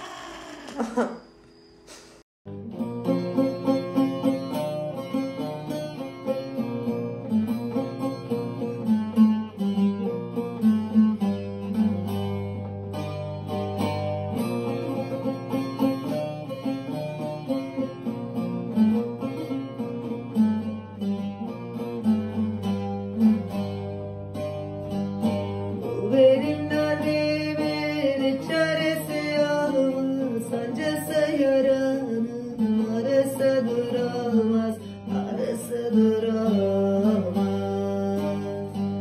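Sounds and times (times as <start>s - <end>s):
long-necked lute strummed: 1.9s - 39.0s
woman singing: 25.9s - 38.9s.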